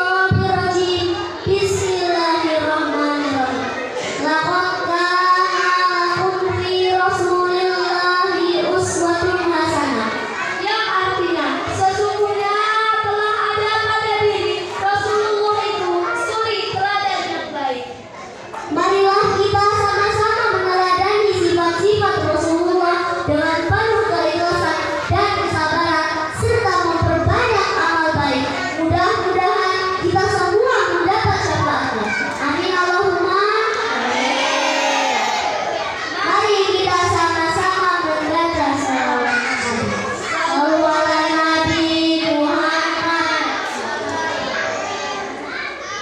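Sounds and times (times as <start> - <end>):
girl singing into microphone: 4.0 - 9.8.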